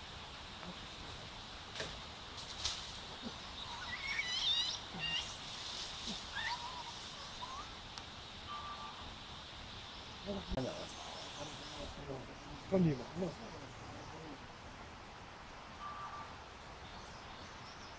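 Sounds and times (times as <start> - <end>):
high animal chirps: 3.2 - 7.8.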